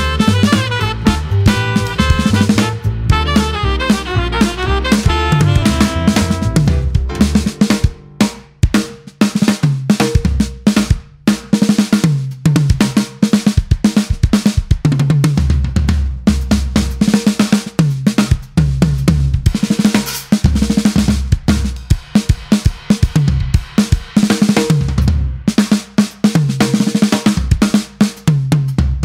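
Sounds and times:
tom fills: 0.0s - 13.1s
cymbals: 0.0s - 13.7s, 19.4s - 28.3s
bass drum: 0.0s - 29.0s
snare drum rolls: 0.0s - 29.0s.

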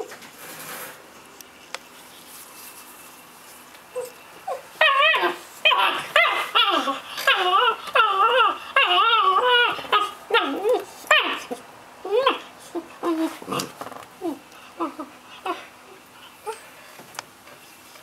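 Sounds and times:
puppy whining: 3.9s - 16.8s.

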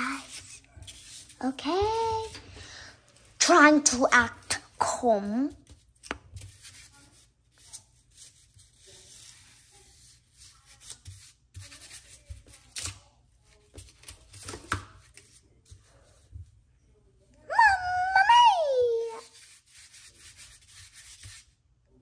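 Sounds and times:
paper rubbing and tearing: 0.0s - 2.4s, 6.4s - 13.0s, 19.0s - 21.5s.

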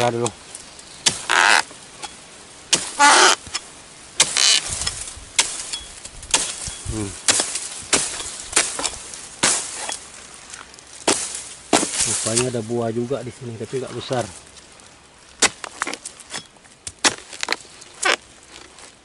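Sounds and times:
leaf rustle: 0.0s - 19.0s
chisel chopping palm frond: 1.0s - 10.1s, 10.9s - 12.6s, 15.4s - 18.2s.

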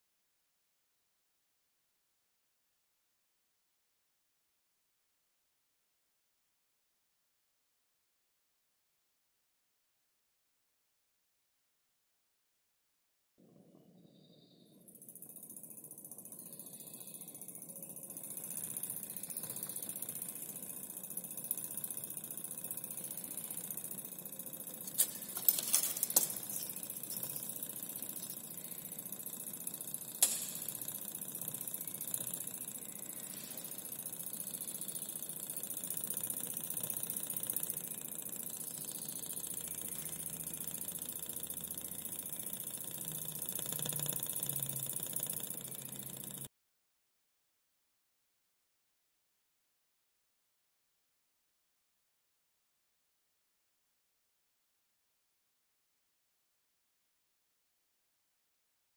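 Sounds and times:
small engine mechanical rattle: 14.2s - 46.5s
gas torch flame hissing: 16.4s - 46.5s
sharp clicks: 16.8s - 46.5s.

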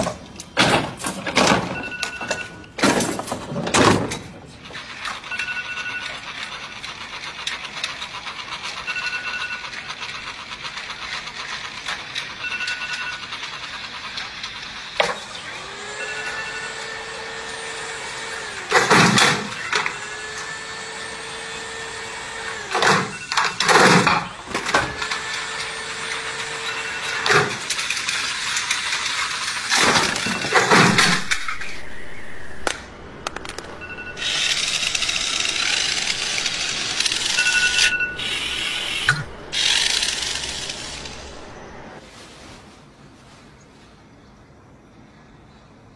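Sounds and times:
steady machine hum: 24.4s - 42.0s.

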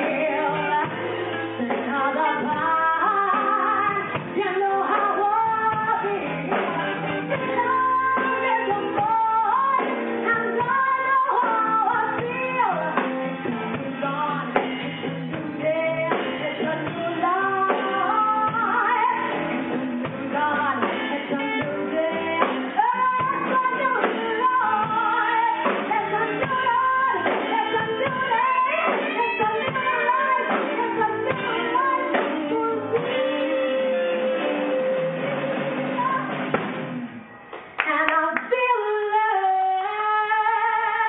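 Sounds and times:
woman singing into a microphone: 0.0s - 36.5s, 37.8s - 41.0s
live band playing: 0.0s - 41.0s.

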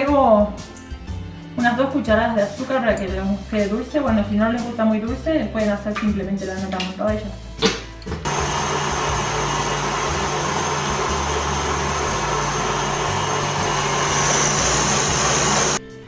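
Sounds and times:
stand mixer whisking: 8.3s - 15.8s.

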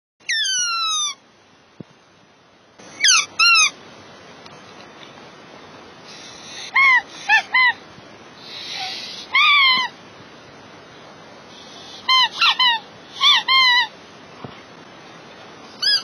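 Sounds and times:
rubber squeaky toy squeaks: 0.2s - 1.2s, 3.0s - 3.7s, 15.8s - 16.0s
faint steady hiss: 0.2s - 16.0s.

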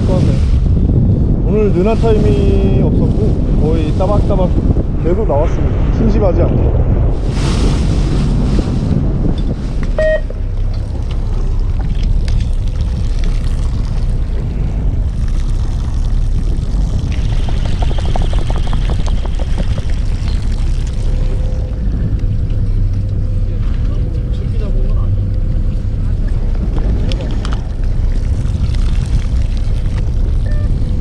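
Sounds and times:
wind buffeting microphone: 0.0s - 31.0s
boat engine running: 7.0s - 31.0s
short beep: 10.0s - 10.4s, 30.4s - 30.8s.

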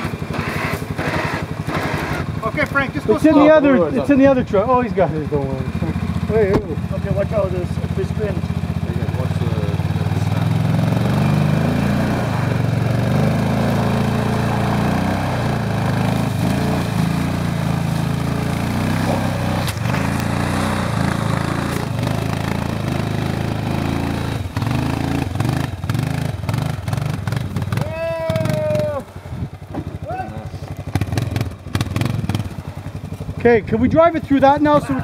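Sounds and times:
atv engine running under load: 0.0s - 35.0s.

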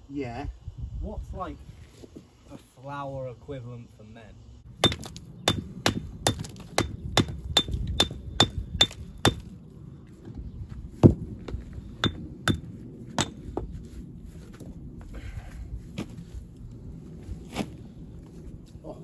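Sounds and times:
hammer blows ringing: 4.8s - 9.4s, 12.0s - 13.4s.

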